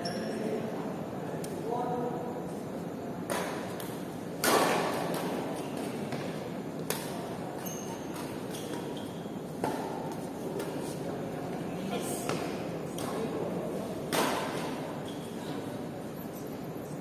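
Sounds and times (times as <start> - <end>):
steady background noise: 0.0 - 17.0
rackets hitting shuttlecock: 3.3 - 7.2, 8.0 - 10.9, 14.0 - 14.9.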